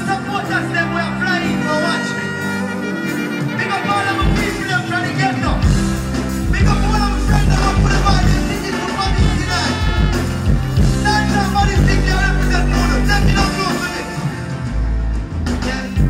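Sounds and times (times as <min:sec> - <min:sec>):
deejay voice on microphone: 0:00.0 - 0:14.7, 0:15.4 - 0:16.0
dancehall riddim with deep bass: 0:05.6 - 0:16.0.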